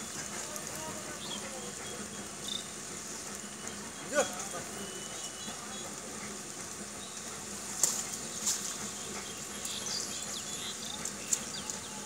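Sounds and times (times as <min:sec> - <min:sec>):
faint chirps: 0:01.1 - 0:06.0.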